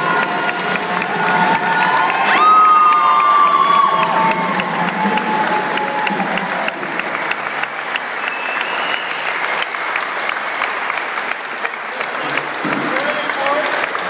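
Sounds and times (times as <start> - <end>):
voices in crowd: 0.0 - 9.6
crowd applauding: 0.0 - 14.0.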